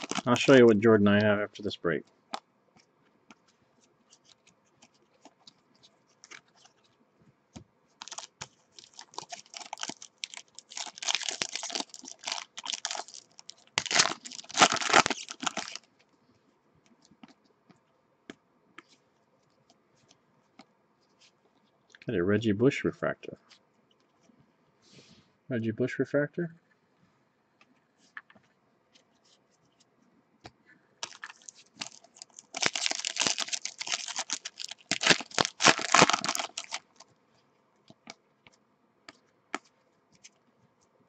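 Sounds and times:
wrapper tearing and crinkling: 0.0s - 0.7s, 8.0s - 15.9s, 31.0s - 37.0s.

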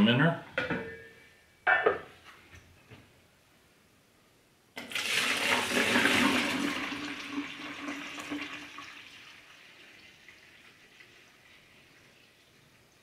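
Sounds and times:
liquid pouring and splashing: 4.8s - 12.7s.

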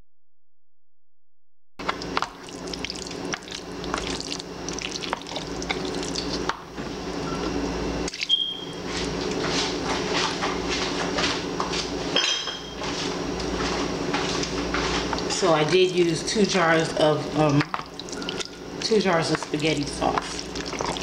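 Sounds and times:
wet squelching food stirred: 1.8s - 6.5s, 13.4s - 21.0s.

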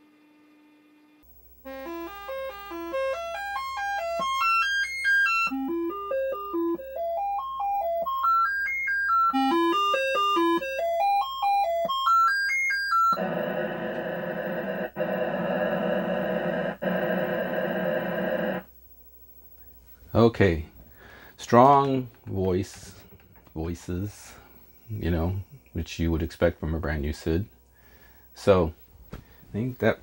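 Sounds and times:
steady buzzing chord: 13.2s - 18.7s.

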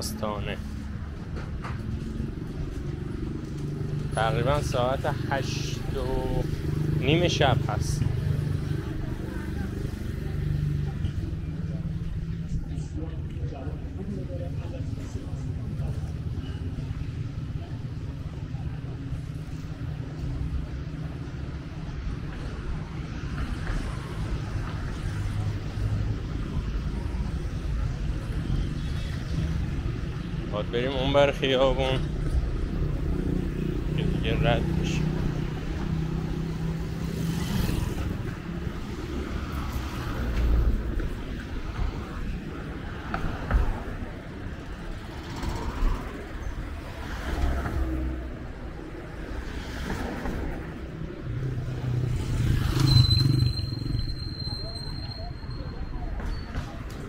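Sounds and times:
traffic rumble: 0.0s - 57.0s
motorcycle passing by: 32.2s - 40.9s, 49.6s - 54.0s.

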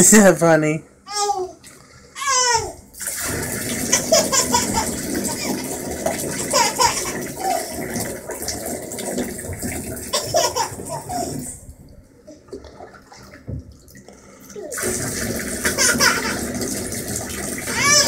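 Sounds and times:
baby squealing: 2.2s - 2.8s, 17.7s - 18.0s
water splashing into bath: 2.9s - 18.0s.

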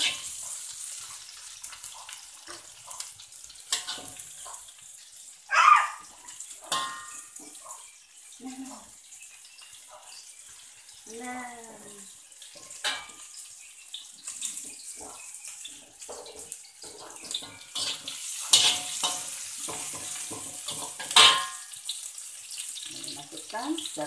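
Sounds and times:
metal spatula scraping a wok: 0.0s - 4.7s, 12.3s - 21.8s
vegetables sizzling in hot oil: 0.0s - 24.0s.

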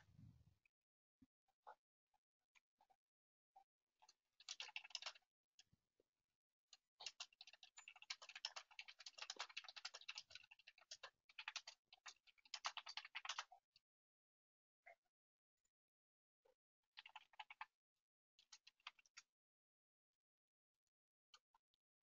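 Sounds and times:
typing on a computer keyboard: 4.4s - 5.2s, 7.0s - 13.5s.

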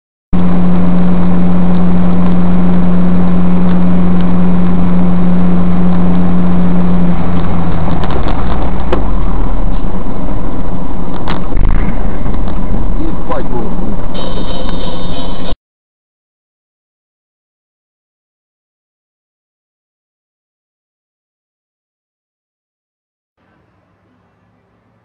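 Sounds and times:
car engine and road noise: 0.4s - 15.6s, 23.4s - 25.0s
low hum: 0.4s - 15.6s.

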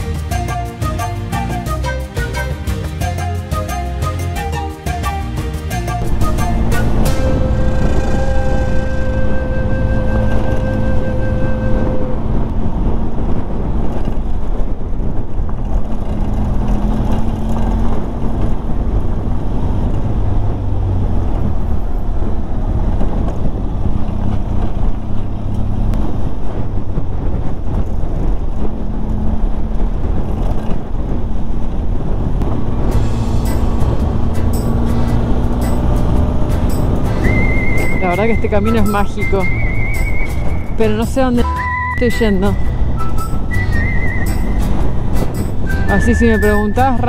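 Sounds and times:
wind noise on microphone: 0.0s - 47.0s
motorcycle engine running: 5.9s - 41.6s.

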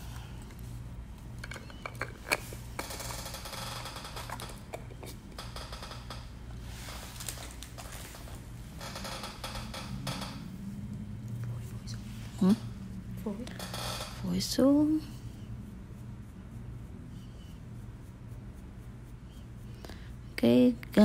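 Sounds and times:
steady low hum: 0.0s - 21.0s
soft rustling: 6.3s - 8.8s.

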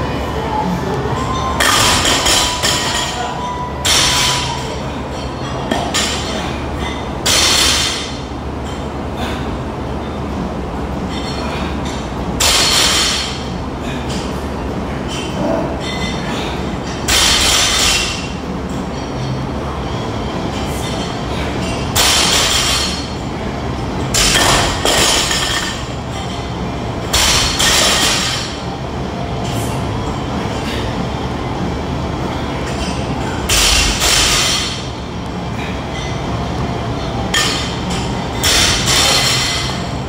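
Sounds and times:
gym background noise: 0.0s - 40.0s
barbell plates clanking: 24.0s - 28.6s, 37.2s - 40.0s.

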